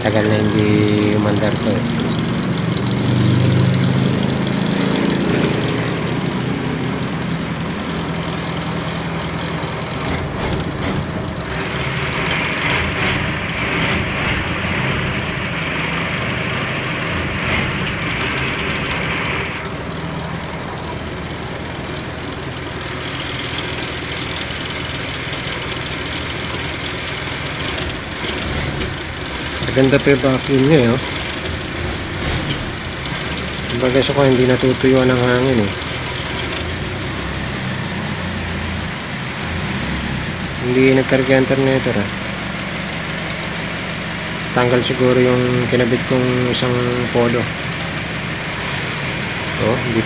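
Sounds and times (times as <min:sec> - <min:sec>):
valve-train clatter: 0:00.0 - 0:37.3
diesel engine idling: 0:00.0 - 0:50.0.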